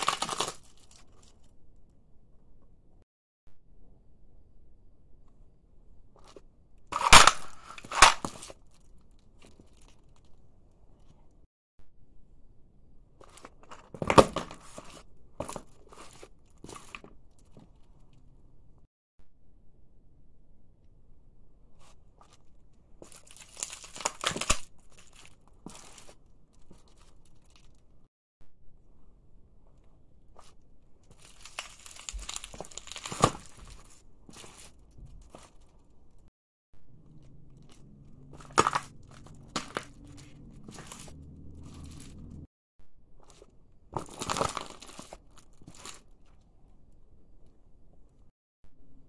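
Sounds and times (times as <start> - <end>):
garlic skin crackling underfoot: 0.0 - 1.4, 30.4 - 35.8.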